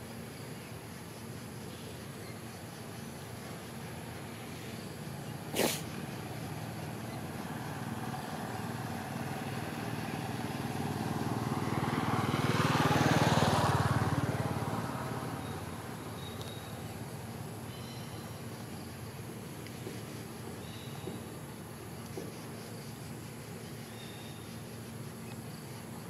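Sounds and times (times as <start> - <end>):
vehicle passing by: 5.4 - 17.5.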